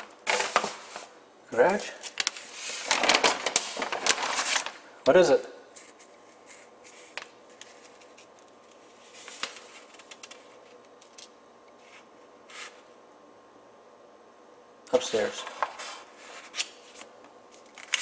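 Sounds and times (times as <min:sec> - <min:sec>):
faint steady hum: 0:00.0 - 0:18.0
hand rustling over paper sheet: 0:00.3 - 0:01.1, 0:01.7 - 0:04.8, 0:05.8 - 0:10.8.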